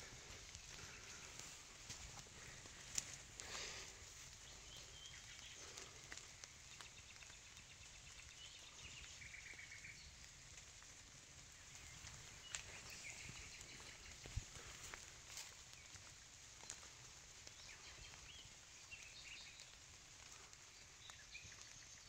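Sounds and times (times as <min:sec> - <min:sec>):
footsteps on path: 0:00.0 - 0:21.8
faint birds singing: 0:00.0 - 0:22.0.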